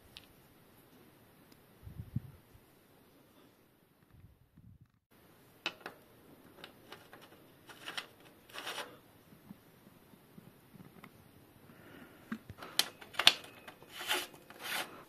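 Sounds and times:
short scraping rubs: 0:13.4 - 0:15.0.

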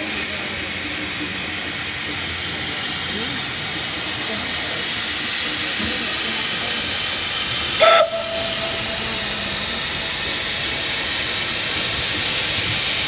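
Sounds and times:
steady steam hiss: 0:00.0 - 0:13.0
steam whistle toot: 0:07.8 - 0:09.4.

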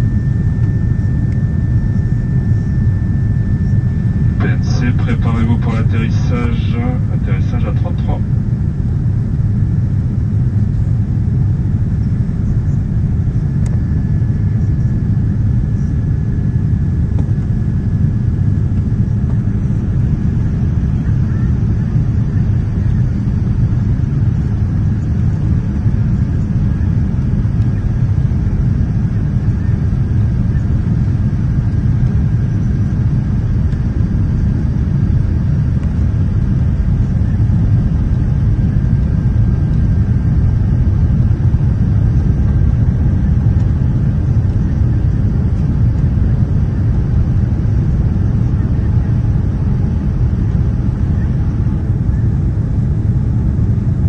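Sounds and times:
faint thin whine: 0:00.0 - 0:10.2, 0:10.8 - 0:43.0
airplane cabin engine rumble: 0:00.0 - 0:54.0.

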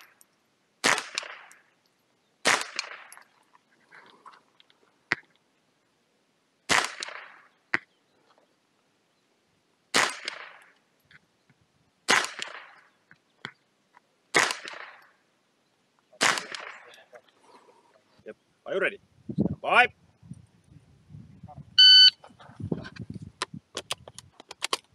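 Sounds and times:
rifle shots with echo: 0:00.8 - 0:01.6, 0:02.4 - 0:03.2, 0:06.7 - 0:07.5, 0:09.9 - 0:10.7, 0:12.1 - 0:12.8, 0:14.3 - 0:15.0, 0:16.2 - 0:17.0.

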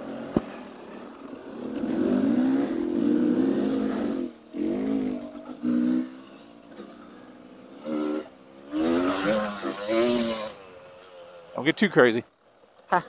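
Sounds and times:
dirt bike engine revving: 0:00.0 - 0:12.2.

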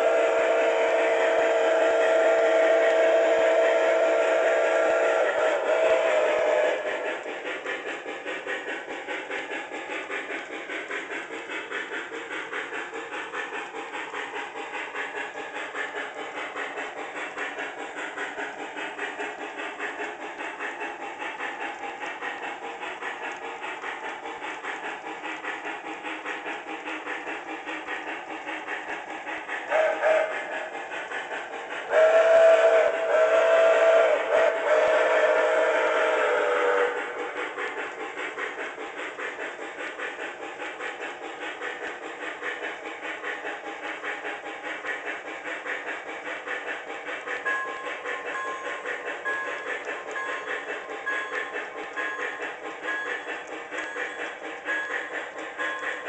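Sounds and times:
train whistle toot: 0:00.0 - 0:07.0, 0:29.7 - 0:30.7, 0:31.9 - 0:37.4
model steam train chuffing: 0:00.0 - 0:56.0.

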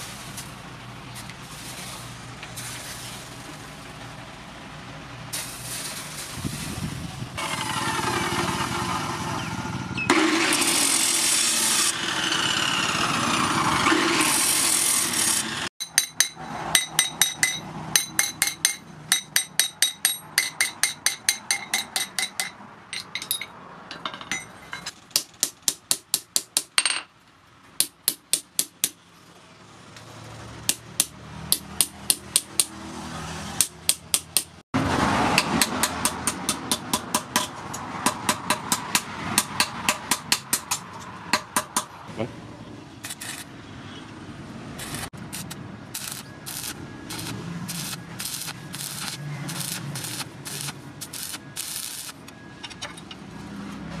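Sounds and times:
cut-off saw grinding steel: 0:07.4 - 0:15.7
loud steady rushing noise: 0:44.7 - 0:52.4.

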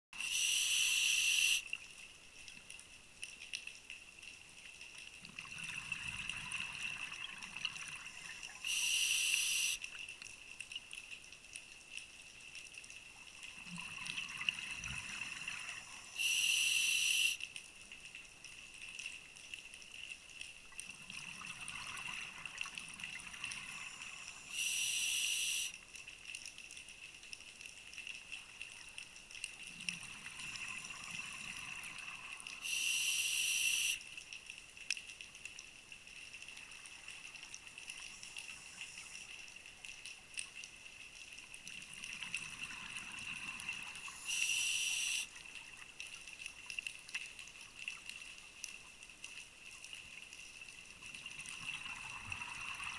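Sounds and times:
regulator inhalation hiss: 0:00.2 - 0:01.6, 0:08.2 - 0:09.8, 0:15.7 - 0:17.4, 0:23.7 - 0:25.7, 0:32.6 - 0:34.0, 0:44.2 - 0:45.3
exhaust bubbles gurgling: 0:51.2 - 0:52.9.

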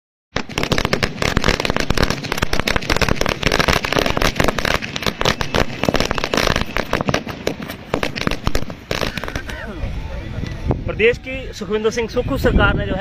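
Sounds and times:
firecrackers banging: 0:00.4 - 0:09.8.

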